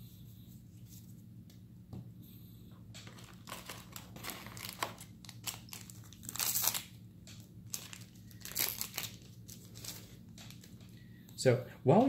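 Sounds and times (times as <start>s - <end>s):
foil wrapper crinkling: 3.0s - 7.0s, 7.6s - 10.8s.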